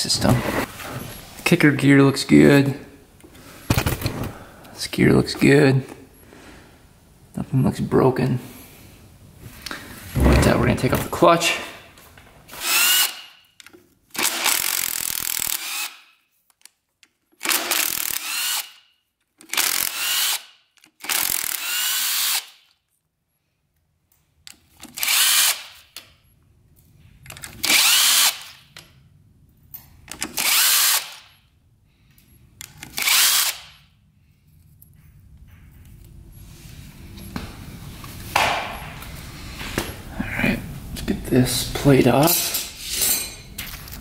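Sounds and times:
power drill spinning out bolts: 14.2s - 16.1s, 17.4s - 18.8s, 19.4s - 22.6s, 27.6s - 28.6s.

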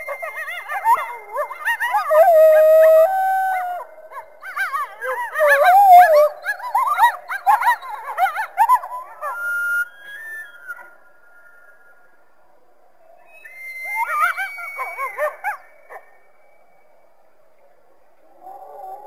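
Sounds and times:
coyotes howling: 0.0s - 11.0s, 12.9s - 16.9s, 18.2s - 19.0s
coyotes yipping: 0.0s - 11.0s, 13.2s - 16.3s.

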